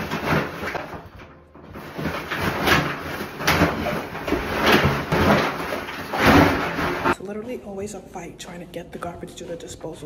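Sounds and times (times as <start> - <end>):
plastic bags rustling and scraping: 0.0 - 7.2
knocks from trash chute hopper: 1.7 - 7.2.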